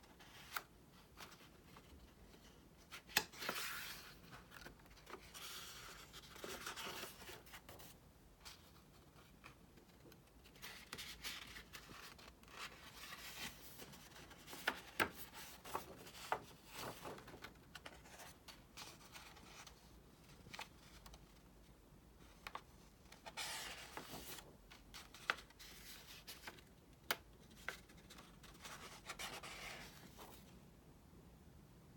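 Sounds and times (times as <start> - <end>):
paper pages turning: 9.4 - 19.7, 22.3 - 30.5.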